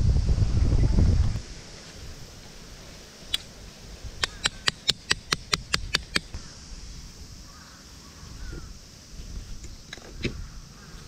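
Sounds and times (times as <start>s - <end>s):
hammer striking metal peg: 4.2s - 6.4s.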